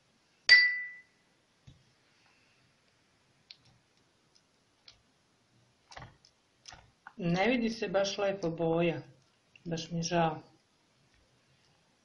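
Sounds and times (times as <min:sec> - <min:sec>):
spoon clinking on dish: 0:00.5 - 0:01.1.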